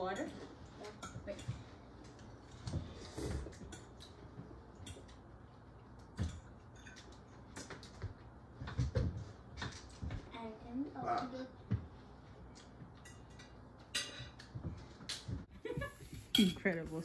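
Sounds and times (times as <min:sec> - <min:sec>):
cutlery scraping on plates: 0:06.2 - 0:07.8, 0:13.0 - 0:14.5.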